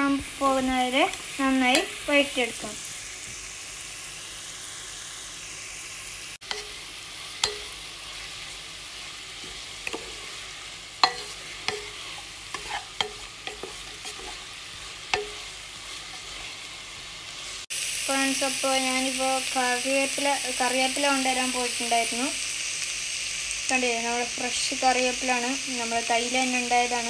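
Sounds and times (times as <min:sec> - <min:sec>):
onions sizzling in hot oil: 0:00.0 - 0:27.0
wooden spatula tapping pan: 0:11.0 - 0:12.0, 0:12.6 - 0:14.3, 0:15.1 - 0:15.5.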